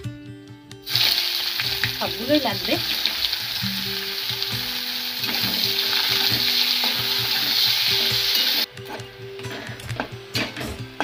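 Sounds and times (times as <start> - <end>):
onions sizzling in hot oil: 0.8 - 8.7
spatula scraping a pan: 5.2 - 10.8.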